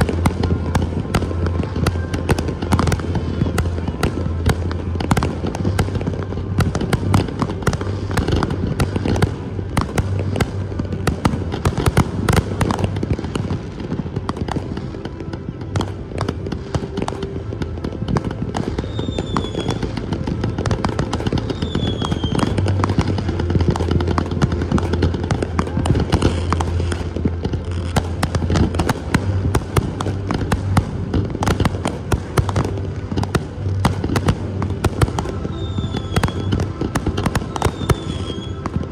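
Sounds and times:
fireworks bursting and crackling: 0.0s - 38.9s.

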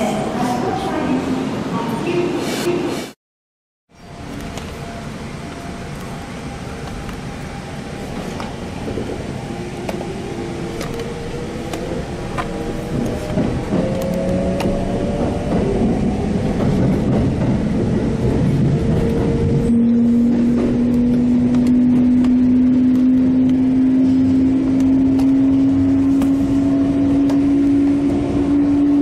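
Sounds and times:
train running rumble: 4.0s - 29.0s
traction motor whine rising: 18.6s - 29.0s.

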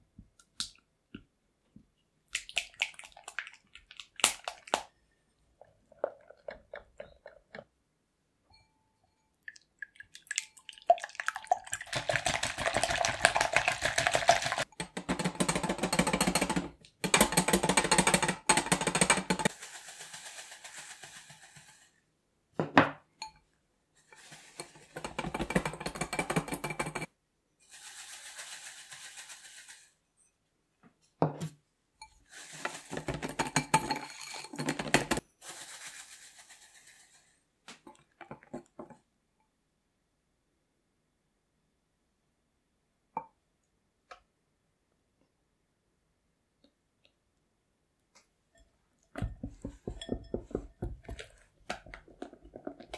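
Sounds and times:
whisk rattling against glass bowl: 11.5s - 21.9s, 24.2s - 27.1s, 49.2s - 51.4s.

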